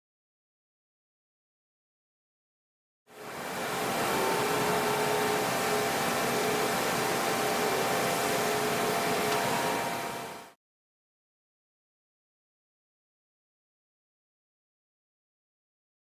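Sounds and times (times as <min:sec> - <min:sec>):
faint machine hum: 0:03.1 - 0:10.6
mechanical hiss: 0:03.2 - 0:10.5.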